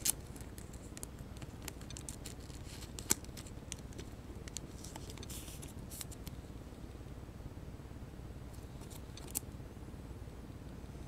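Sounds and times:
plastic sleeve sliding rustle: 0:02.1 - 0:04.1, 0:04.7 - 0:06.2.

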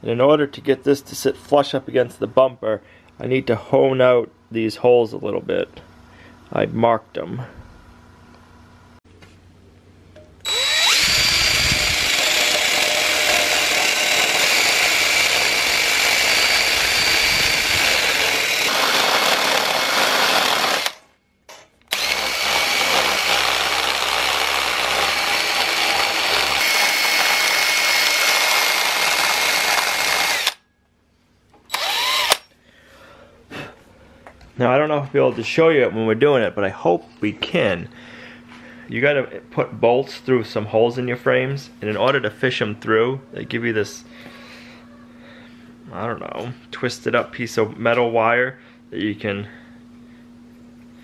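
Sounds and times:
cordless drill grinding steel: 0:10.4 - 0:21.1, 0:21.9 - 0:30.6, 0:31.7 - 0:32.5.

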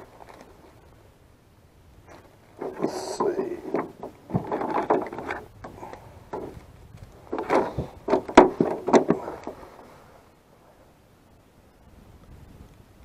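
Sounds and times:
fishing tools rattling and knocking: 0:02.1 - 0:06.6, 0:07.2 - 0:09.6.

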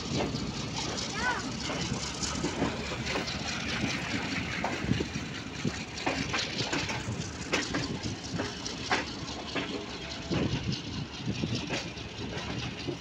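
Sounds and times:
train rushing noise: 0:00.0 - 0:13.0
wheels clacking over rail joints: 0:00.0 - 0:13.0.

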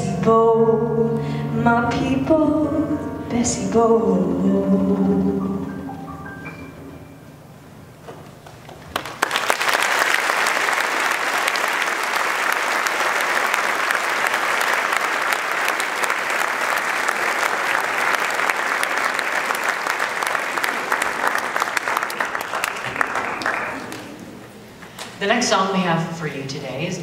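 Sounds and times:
audience applauding: 0:08.4 - 0:24.6.

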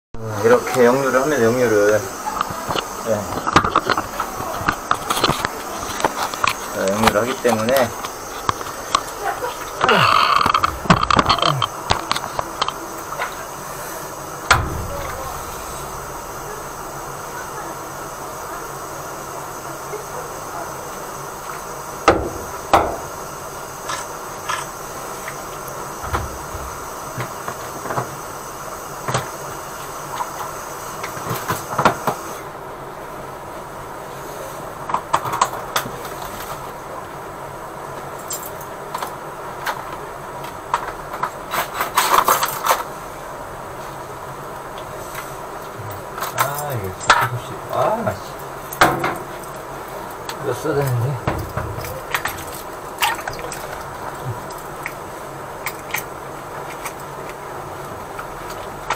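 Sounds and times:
water hissing from drain: 0:00.2 - 0:32.6, 0:42.8 - 0:58.9
steady background hum: 0:00.2 - 0:58.9
sharp clicks and knocks: 0:02.3 - 0:09.2, 0:10.1 - 0:13.4, 0:14.4 - 0:16.9
sharp knocks: 0:14.5 - 0:17.1.

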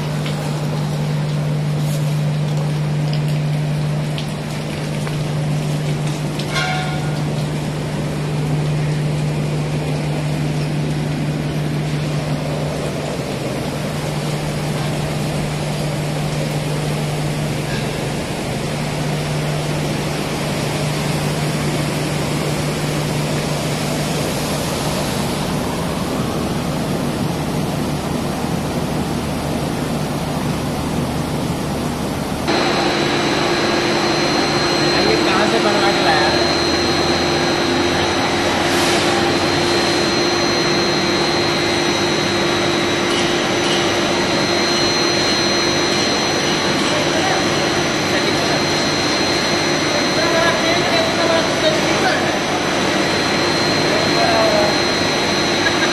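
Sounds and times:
low machinery hum: 0:00.0 - 0:55.9.

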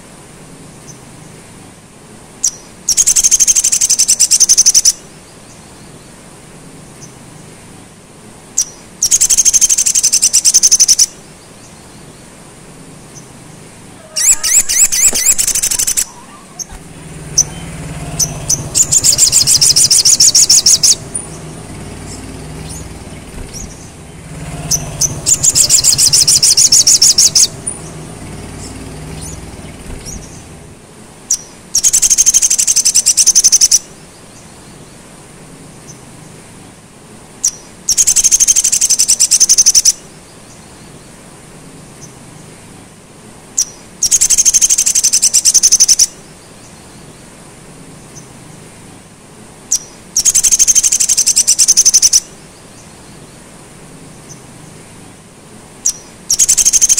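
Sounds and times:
bird trills: 0:02.4 - 0:05.0, 0:08.6 - 0:11.2, 0:14.0 - 0:30.7, 0:31.3 - 0:33.9, 0:37.4 - 0:40.0, 0:43.6 - 0:46.2, 0:49.7 - 0:52.4, 0:55.8 - 0:56.9
bird chips: 0:14.0 - 0:30.6.

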